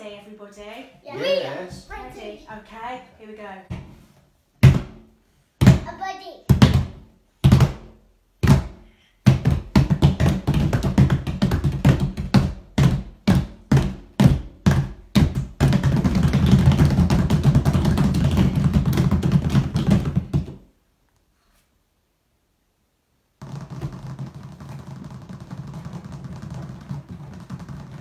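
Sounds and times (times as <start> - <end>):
hands drumming on plastic tubs: 4.6 - 5.9, 6.5 - 20.7, 23.4 - 28.0.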